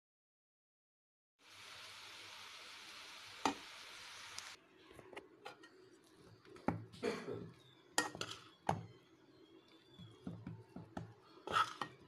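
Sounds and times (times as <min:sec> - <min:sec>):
steady hiss: 0:01.4 - 0:04.6
steel spoon scraping pan: 0:11.3 - 0:12.0.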